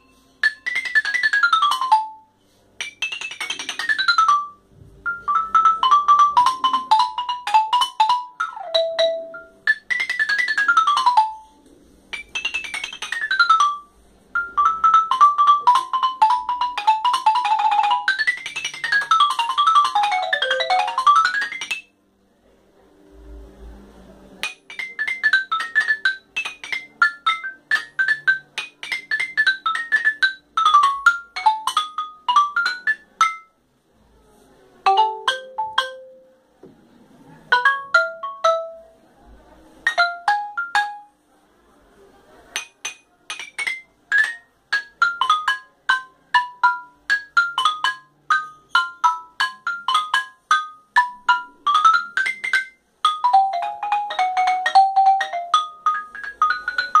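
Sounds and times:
wooden mallet keyboard runs: 0:02.8 - 0:11.4, 0:14.4 - 0:21.8, 0:43.4 - 0:57.0.

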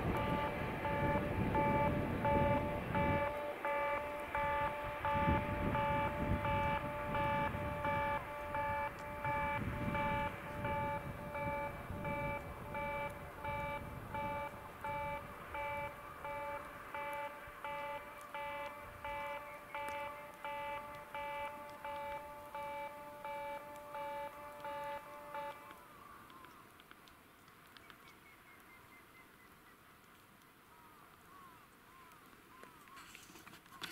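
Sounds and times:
level-crossing warning bell ringing: 0:00.0 - 0:25.7.

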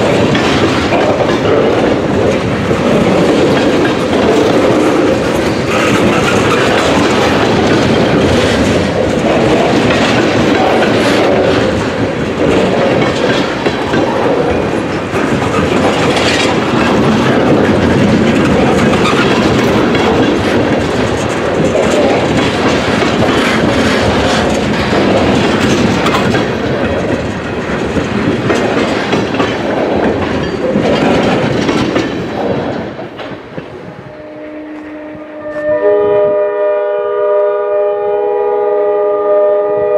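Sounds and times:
clicks over rail joints: 0:00.0 - 0:33.7
freight train wheels rumbling on rails: 0:00.0 - 0:39.9
diesel locomotive horn: 0:34.0 - 0:39.9.

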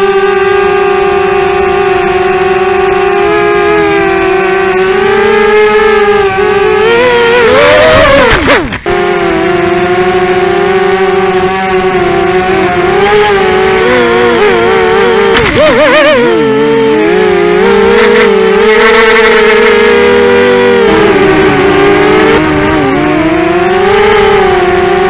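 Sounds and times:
quadcopter motors whining: 0:00.0 - 0:25.0.

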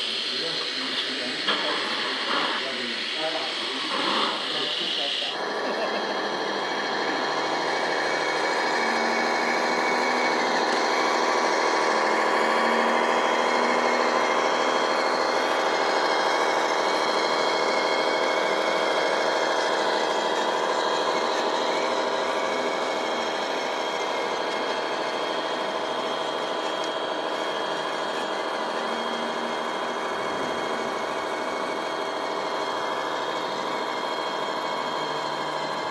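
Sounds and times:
model truck motor droning: 0:00.0 - 0:35.9.

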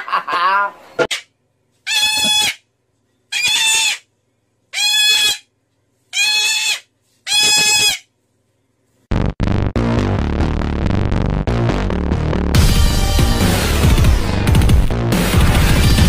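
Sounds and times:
cockatoo screeching: 0:01.1 - 0:02.6, 0:03.3 - 0:04.1, 0:04.7 - 0:05.5, 0:06.1 - 0:08.1
music: 0:09.1 - 0:16.0.

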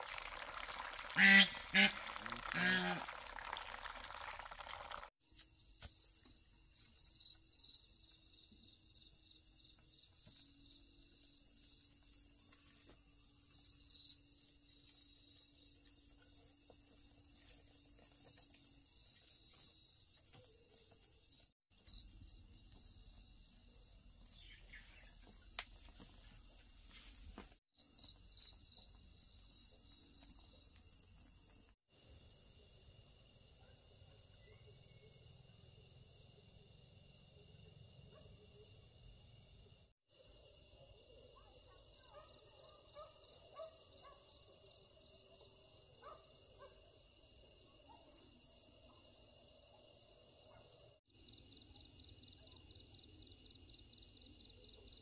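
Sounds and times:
crickets chirring: 0:00.0 - 0:33.7.

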